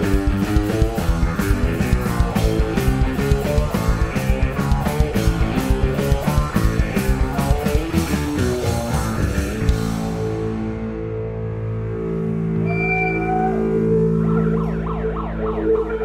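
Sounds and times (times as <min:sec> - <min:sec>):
drum kit: 0:00.0 - 0:11.4
bass guitar: 0:00.0 - 0:16.0
electric guitars: 0:00.0 - 0:16.0.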